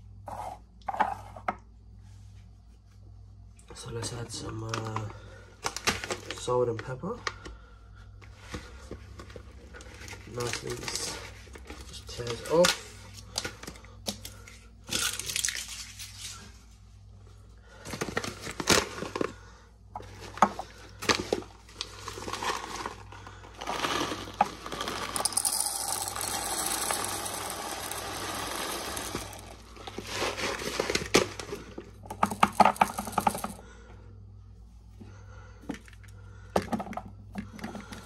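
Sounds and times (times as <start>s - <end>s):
salt crystals rattling into grinder: 10.3s - 11.3s, 21.8s - 33.8s
plastic bag crinkling: 21.0s - 33.6s.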